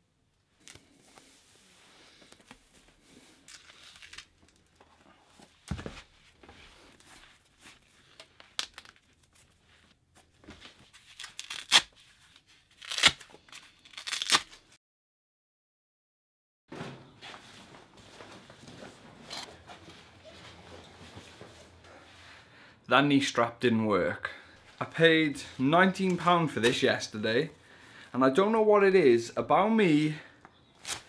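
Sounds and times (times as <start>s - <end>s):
fabric rustling: 16.8s - 22.2s.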